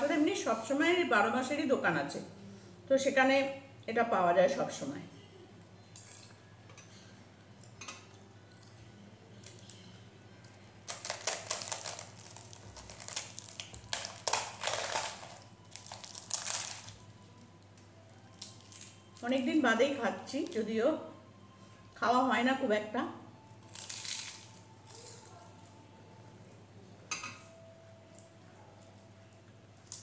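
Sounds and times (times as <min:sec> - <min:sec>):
flatbread tearing and crumbling: 0:10.8 - 0:17.1, 0:18.3 - 0:19.2, 0:23.6 - 0:25.5.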